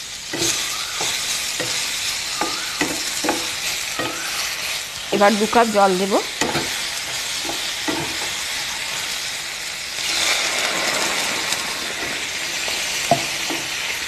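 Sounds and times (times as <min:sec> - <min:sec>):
vegetables sizzling in oil: 0:00.0 - 0:14.0
spatula knocking on pan: 0:00.4 - 0:04.5
water poured into hot pan: 0:09.6 - 0:14.0.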